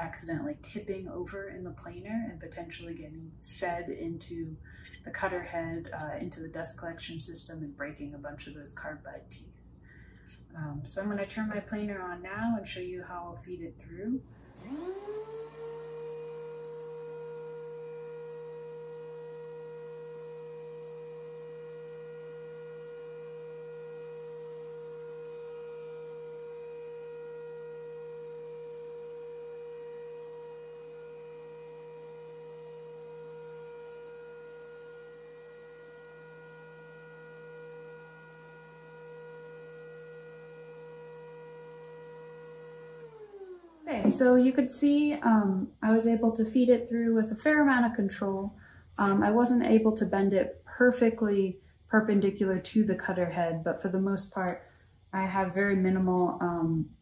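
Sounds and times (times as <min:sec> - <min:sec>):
thickness planer whining: 0:14.4 - 0:45.6.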